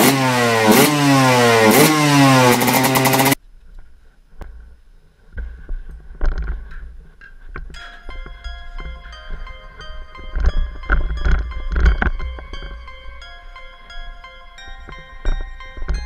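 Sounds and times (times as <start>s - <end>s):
motorcycle engine revving: 0.0s - 3.4s.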